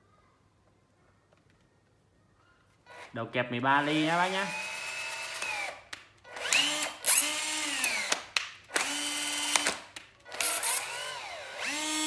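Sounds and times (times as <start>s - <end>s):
cordless drill motor whining: 3.8s - 12.0s.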